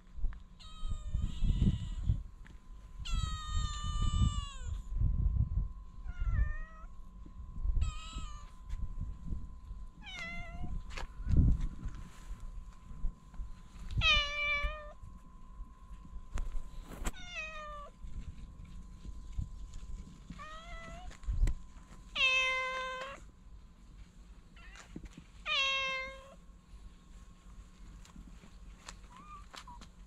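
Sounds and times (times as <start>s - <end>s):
cat meowing: 3.1s - 4.8s, 7.8s - 8.6s, 22.2s - 23.2s, 25.5s - 26.4s.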